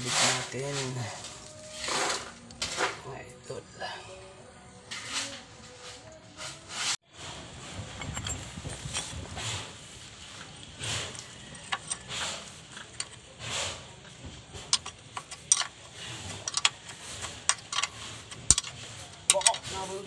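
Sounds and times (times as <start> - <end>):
wrench clicking on metal: 14.6 - 19.7.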